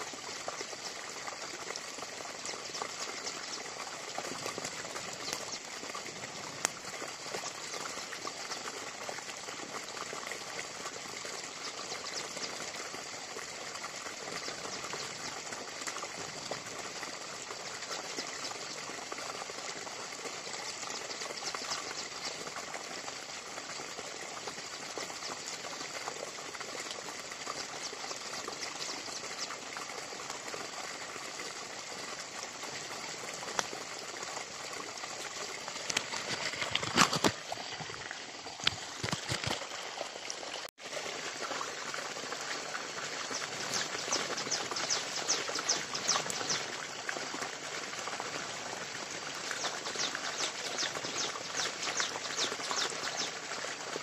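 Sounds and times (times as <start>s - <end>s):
steady forest hiss: 0.0s - 54.0s
rapid animal chirping: 43.4s - 46.7s.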